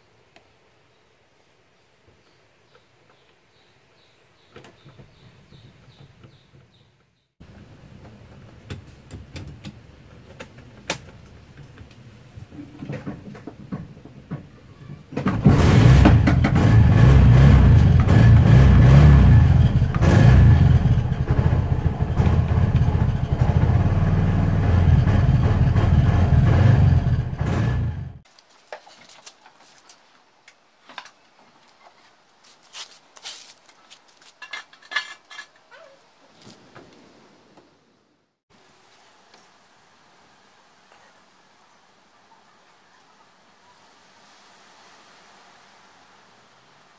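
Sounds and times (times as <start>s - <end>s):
engine kick-start: 15.2s - 28.1s
auto rickshaw engine running: 15.2s - 28.2s.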